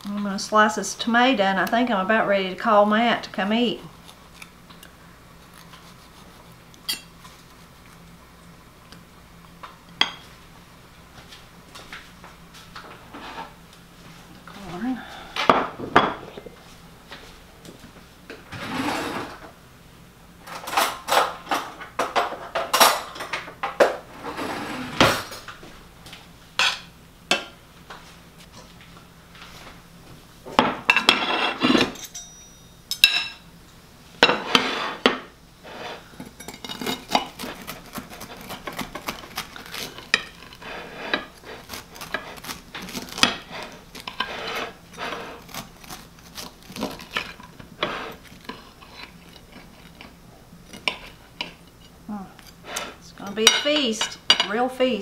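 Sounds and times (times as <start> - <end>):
knife scraping a plate: 13.1 - 13.6, 18.5 - 19.4, 30.9 - 32.2, 34.2 - 53.0
plates clattering on wooden table: 15.4 - 16.3, 24.8 - 25.5, 30.6 - 32.2.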